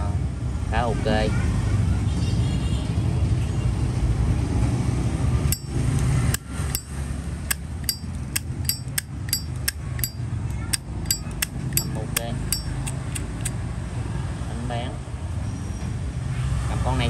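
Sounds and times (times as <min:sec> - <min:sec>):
lighter lid clicking: 0:12.5 - 0:13.5.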